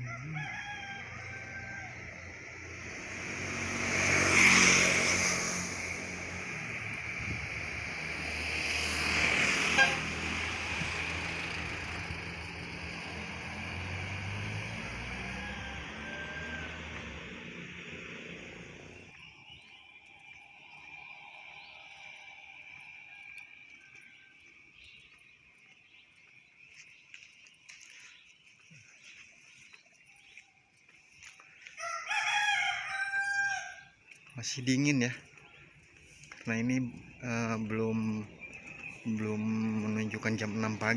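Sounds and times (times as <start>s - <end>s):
rooster crowing: 0.0s - 3.1s, 9.7s - 19.0s, 20.9s - 24.9s, 31.6s - 34.0s
van driving past: 0.0s - 23.4s, 33.5s - 40.9s
short horn toot: 9.7s - 10.2s
insects trilling: 17.9s - 26.0s.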